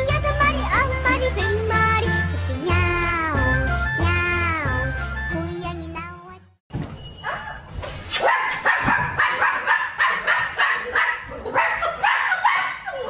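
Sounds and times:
puppy yipping: 7.2s - 13.0s.

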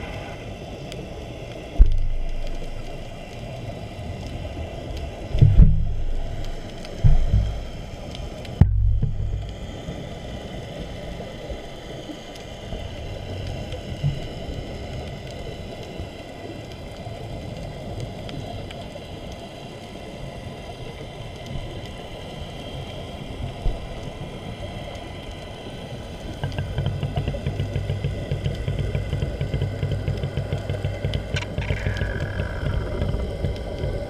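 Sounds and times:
muffled underwater rush: 0.0s - 34.0s
faint clicks: 0.8s - 10.0s, 10.7s - 19.5s, 23.4s - 34.0s
rhythmic low pulsing: 1.8s - 3.2s, 5.3s - 8.0s, 8.6s - 9.6s, 26.4s - 34.0s.

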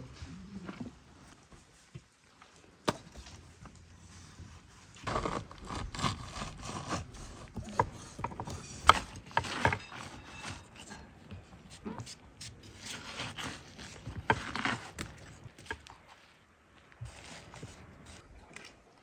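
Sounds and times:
knife cutting through watermelon: 5.0s - 15.9s, 17.0s - 18.3s.

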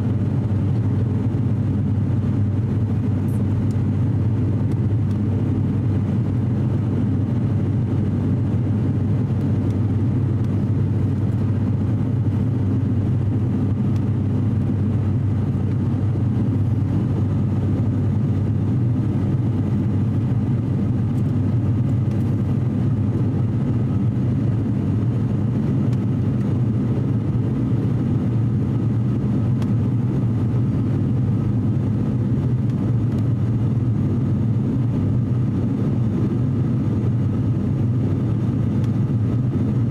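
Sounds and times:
turboprop engines droning: 0.0s - 39.9s.

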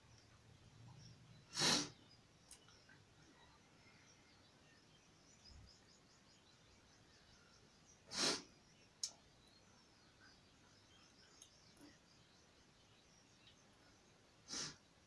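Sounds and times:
sharp breath through nose: 1.5s - 2.0s, 8.1s - 8.5s, 14.5s - 14.9s.

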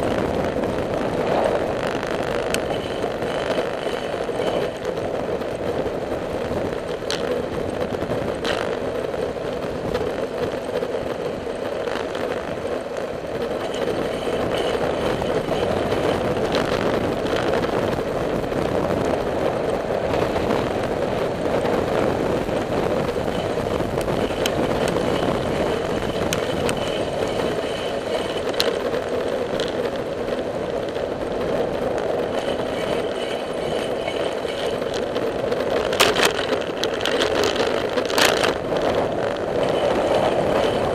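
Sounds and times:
tyre noise on asphalt: 0.0s - 40.9s
wind over microphone: 0.0s - 40.9s
light clicks and rattles: 32.0s - 38.6s.

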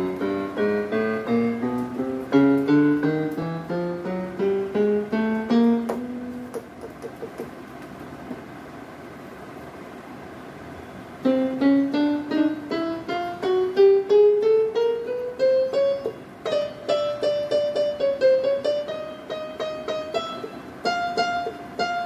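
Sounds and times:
electronic keyboard single notes: 0.0s - 7.0s.

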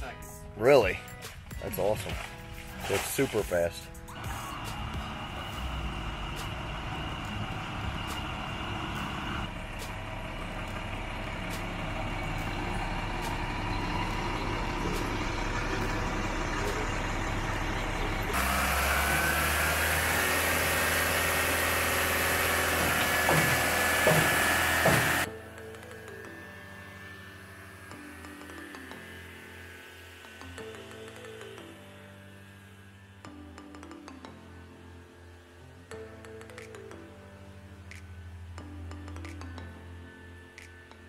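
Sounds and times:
concrete truck and pump running: 1.2s - 31.7s
knocks: 22.8s - 25.2s.

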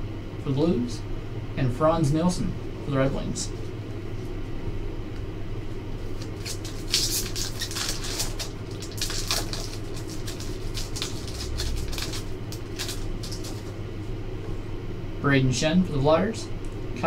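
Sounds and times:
steady low hum: 0.0s - 17.0s
foil wrapper crinkling: 6.0s - 13.8s.

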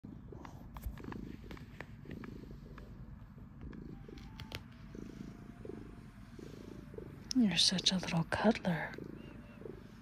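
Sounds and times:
cat purring: 0.0s - 10.0s.

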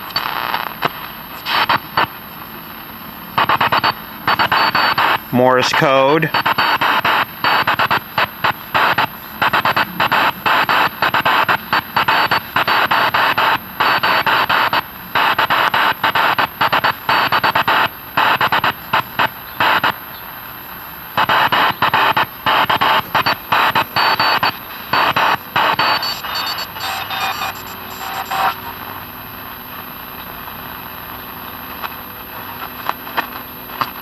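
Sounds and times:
morse code from radio speaker: 0.1s - 0.6s, 3.4s - 20.0s, 21.2s - 28.9s.

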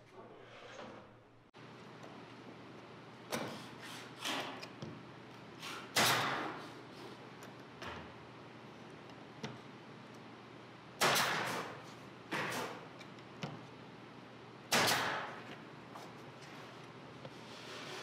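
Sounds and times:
nail gun firing into wood: 5.9s - 6.6s, 11.0s - 12.8s, 14.7s - 15.4s.

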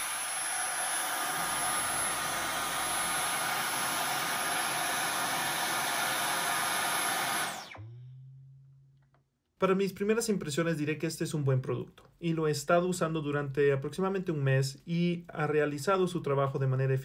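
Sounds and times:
cordless vacuum running: 0.0s - 7.9s
vacuum motor spinning down: 0.0s - 8.0s.

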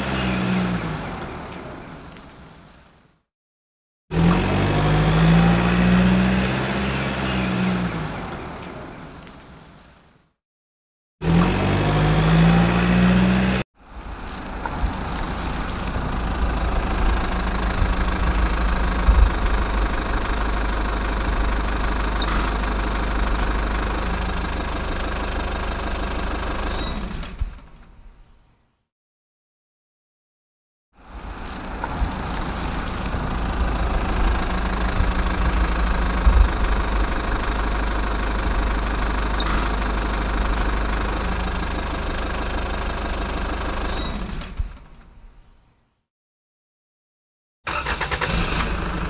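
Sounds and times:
motorcycle engine rising and falling: 11.2s - 13.6s, 31.1s - 41.4s
tractor engine running: 11.3s - 27.9s, 31.0s - 45.1s, 47.7s - 49.0s.

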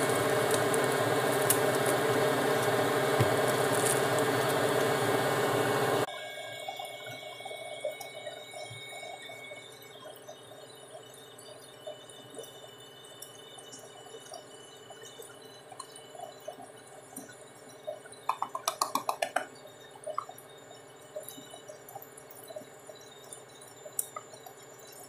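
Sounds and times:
box tapping on metal bowl: 18.3s - 19.5s.

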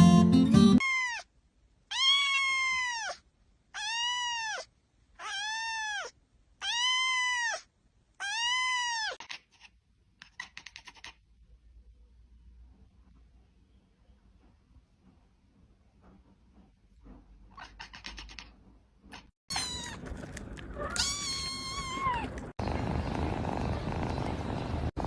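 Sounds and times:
cat meowing: 0.8s - 1.3s, 1.9s - 11.1s, 19.2s - 20.0s, 20.7s - 22.4s.

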